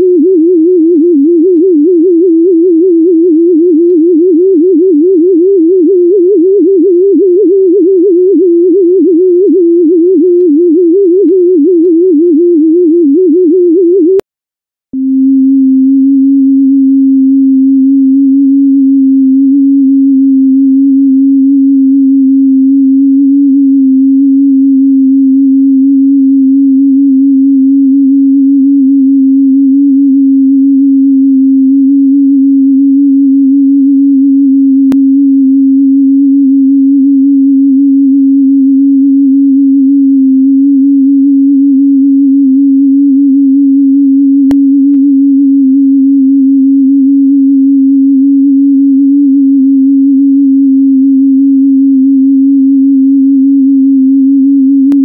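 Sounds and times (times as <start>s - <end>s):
steady electronic pure tone: 0.0s - 14.3s, 14.9s - 55.0s.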